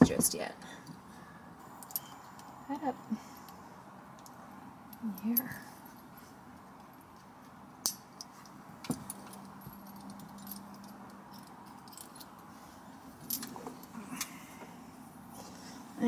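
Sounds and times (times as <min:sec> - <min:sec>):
metal clip clicks and jingles: 0:01.8 - 0:02.6, 0:04.2 - 0:12.4, 0:13.2 - 0:13.9.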